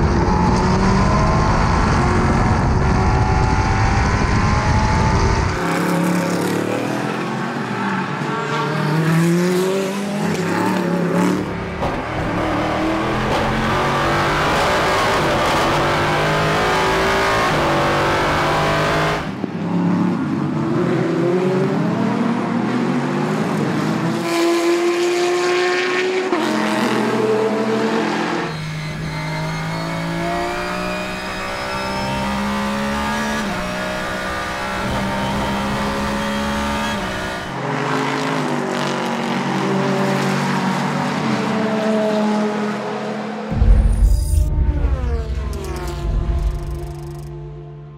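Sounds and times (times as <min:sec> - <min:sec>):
racing car engines at full throttle: 0:00.0 - 0:47.9.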